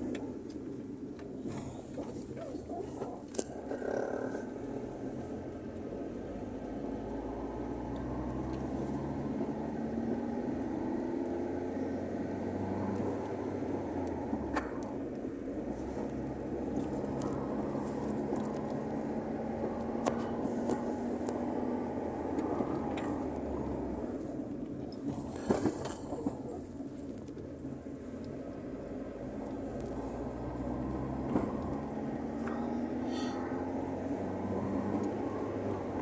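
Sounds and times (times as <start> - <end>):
car engine and tyre noise: 0.0 - 36.0.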